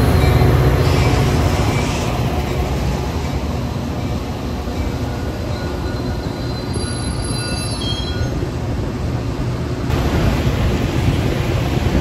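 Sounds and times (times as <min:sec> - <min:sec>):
train wheels rumbling on rails: 0:00.0 - 0:12.0
high wheel squeal: 0:05.1 - 0:08.5.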